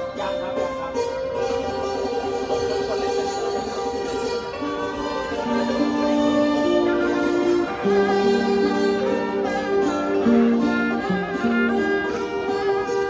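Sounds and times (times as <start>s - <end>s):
hammered dulcimer and keyboard music: 0.0s - 13.0s.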